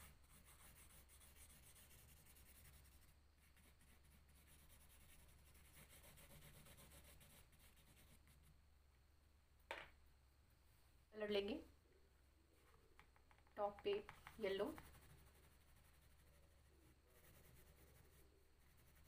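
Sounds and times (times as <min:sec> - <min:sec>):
crayon scratching on paper: 0:00.0 - 0:08.4, 0:14.0 - 0:19.0.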